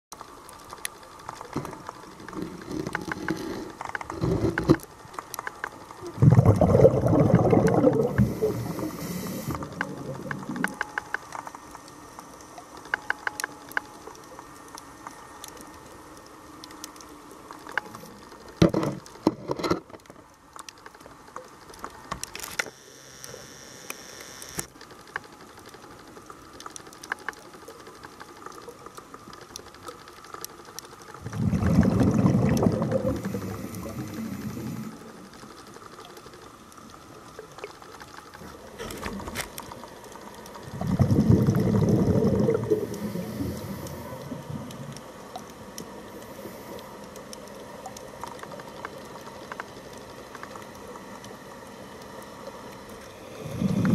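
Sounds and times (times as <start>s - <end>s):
underwater regulator bubbles: 1.6s - 4.8s, 6.0s - 10.9s, 31.2s - 35.2s, 40.5s - 45.5s, 53.3s - 53.9s.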